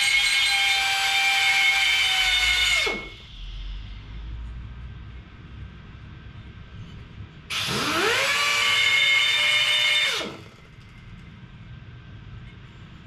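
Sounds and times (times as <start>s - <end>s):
pneumatic grinder whining: 0.0s - 3.3s, 7.5s - 11.0s.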